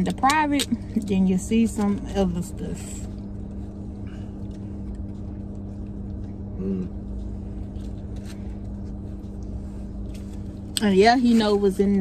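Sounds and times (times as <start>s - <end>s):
car cabin hum: 0.0s - 12.0s
person humming: 6.6s - 7.0s.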